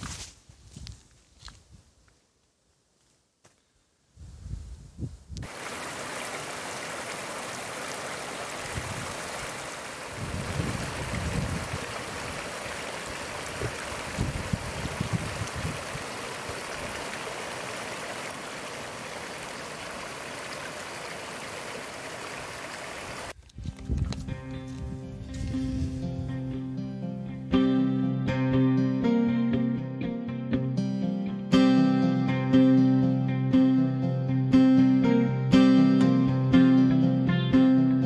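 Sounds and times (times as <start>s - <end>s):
stream running over stones: 5.4s - 23.4s.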